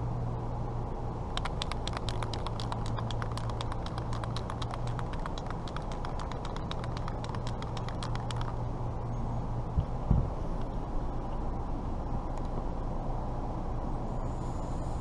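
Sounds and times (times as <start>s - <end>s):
steady low hum: 0.0s - 15.0s
mixing ball rattling in spray can: 1.3s - 8.6s.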